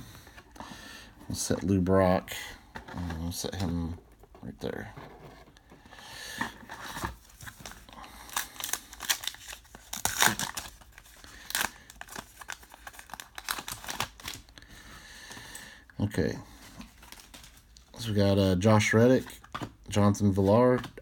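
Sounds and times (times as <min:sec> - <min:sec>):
foil wrapper crinkling and tearing: 0:07.4 - 0:14.5.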